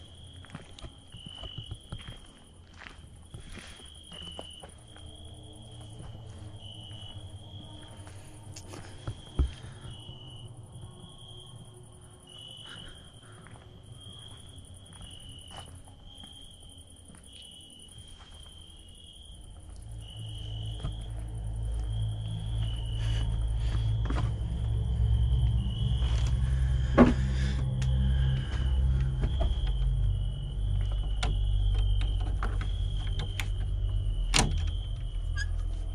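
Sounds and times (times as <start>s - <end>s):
crickets chirping: 0.0s - 35.9s
low rumble: 19.3s - 35.9s.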